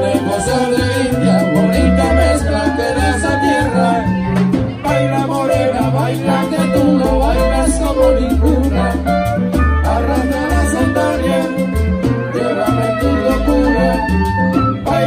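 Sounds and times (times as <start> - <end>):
bass line: 0.0 - 15.0
live salsa band playing: 0.0 - 15.0.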